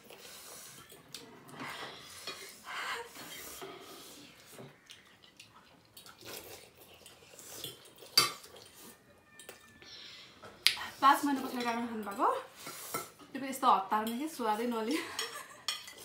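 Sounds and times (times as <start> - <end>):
cutlery clinking on plates: 7.6 - 8.8, 11.3 - 13.2, 14.9 - 16.0.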